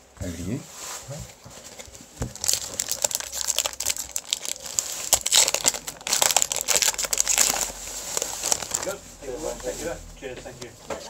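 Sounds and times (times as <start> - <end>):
foil wrapper crinkling: 1.6 - 9.6.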